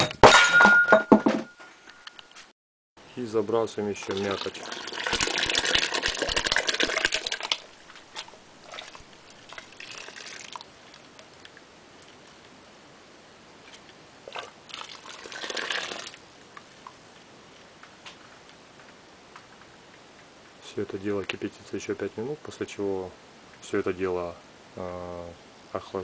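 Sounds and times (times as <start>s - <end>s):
pulp splashing into liquid: 4.0s - 10.7s.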